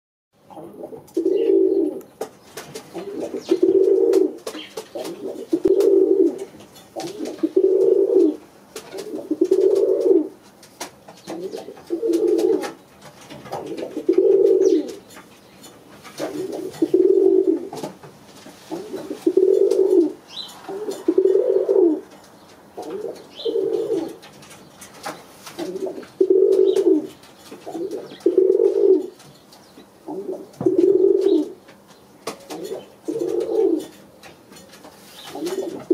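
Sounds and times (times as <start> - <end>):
pigeon cooing: 0.4 - 2.1, 2.7 - 10.4, 11.2 - 12.8, 13.4 - 15.0, 16.1 - 17.8, 18.7 - 22.2, 22.8 - 24.3, 25.6 - 29.2, 30.0 - 31.6, 32.3 - 35.9.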